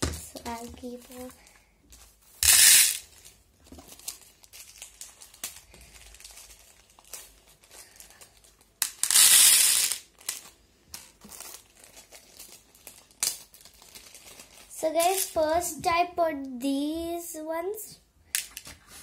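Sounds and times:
plastic packets crinkling: 0.2 - 15.4.

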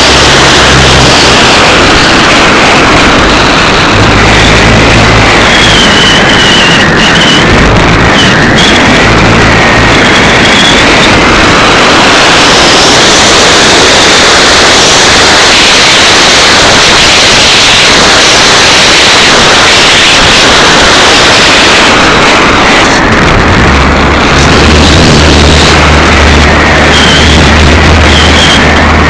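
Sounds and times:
electric motor and propeller buzzing: 0.0 - 29.0
faint whine: 0.0 - 29.0
steady low hum: 0.0 - 29.0
wind rushing: 0.0 - 29.0.

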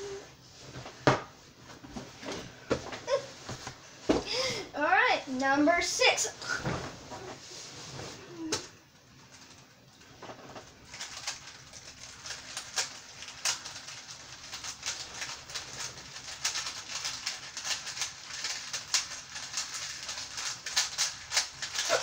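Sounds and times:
faint steady hum: 0.0 - 22.0
small object clicking and rattling: 10.9 - 21.9.

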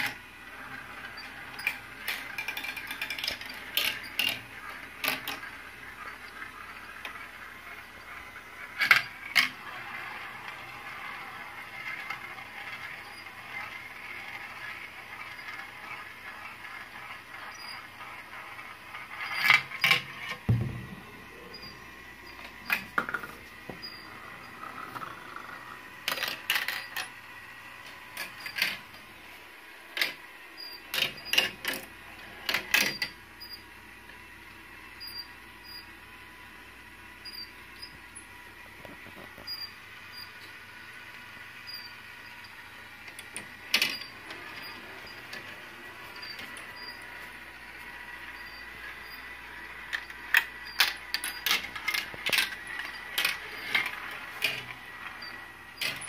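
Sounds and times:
marbles clattering through plastic run: 0.0 - 8.0, 24.2 - 27.2, 49.8 - 55.2
faint steady hum: 0.0 - 56.0
marble elevator ticking: 0.6 - 27.1.

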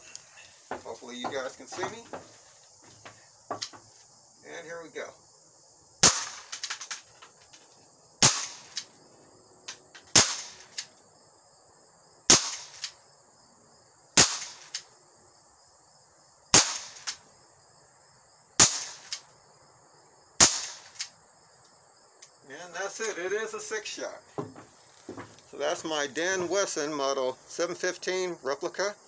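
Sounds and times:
faint knock: 0.7 - 4.0, 24.3 - 25.5
pellet revolver shots: 6.0 - 7.1, 8.2 - 8.9, 10.1 - 10.9, 12.3 - 13.0, 14.2 - 14.9, 16.5 - 17.2, 18.6 - 19.3, 20.4 - 21.1.

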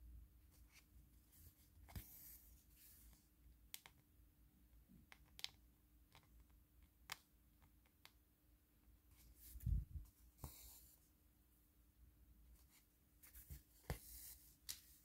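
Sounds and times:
small clicks and light taps: 3.7 - 4.0.

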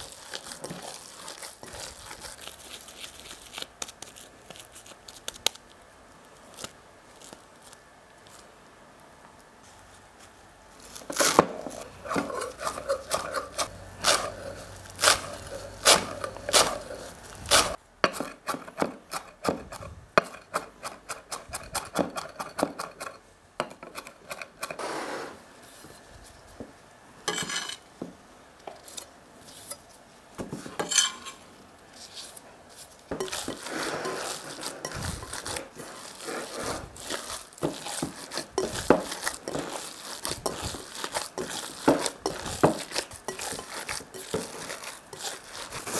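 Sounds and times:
hands mixing meat in bowl: 0.0 - 5.2, 10.9 - 17.8, 32.0 - 45.9.

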